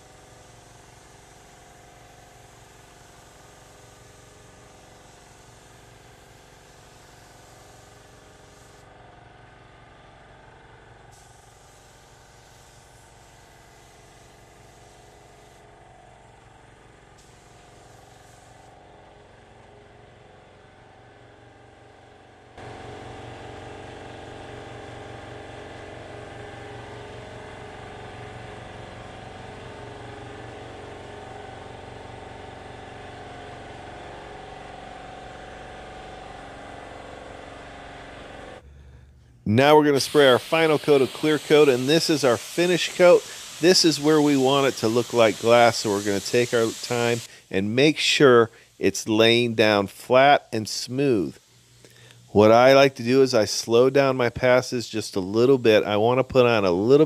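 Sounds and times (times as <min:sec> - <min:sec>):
paint spray gun hissing: 0:00.0 - 0:09.0, 0:10.9 - 0:20.4, 0:21.1 - 0:38.6, 0:39.6 - 0:56.8
machine hum with low pulse: 0:08.5 - 0:39.5.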